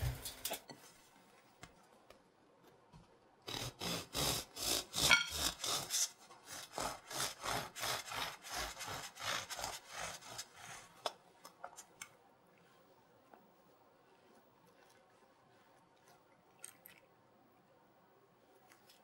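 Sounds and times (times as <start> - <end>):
bread knife sawing through crust: 3.5 - 11.0.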